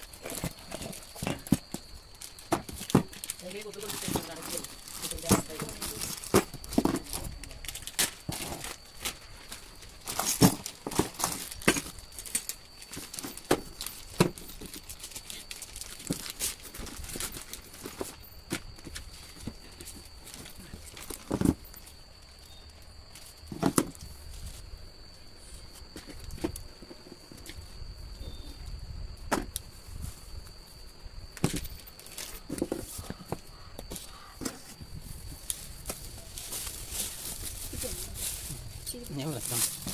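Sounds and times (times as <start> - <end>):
plastic bags crinkling: 0.0 - 18.2, 35.5 - 39.9
objects knocking on cardboard box: 2.5 - 3.2.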